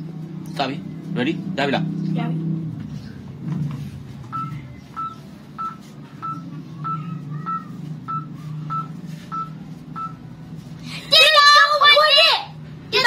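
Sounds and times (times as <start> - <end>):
short electronic beeps: 4.3 - 10.2.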